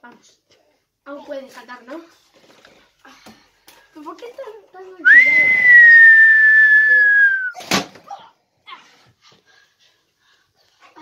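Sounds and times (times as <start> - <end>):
high whistle sliding down: 5.1 - 7.6.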